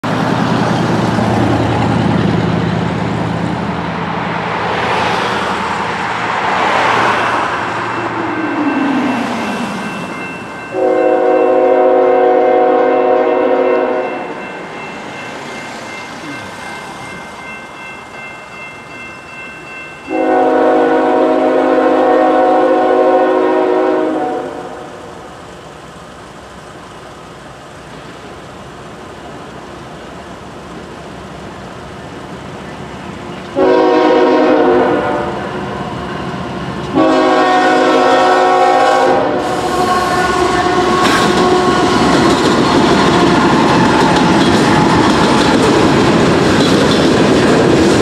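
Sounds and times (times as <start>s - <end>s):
road traffic passing: 0.0s - 48.0s
crossing bells ringing: 6.7s - 22.0s
train air horn blasts: 10.7s - 14.3s, 20.1s - 25.0s, 33.6s - 35.5s, 36.9s - 42.4s.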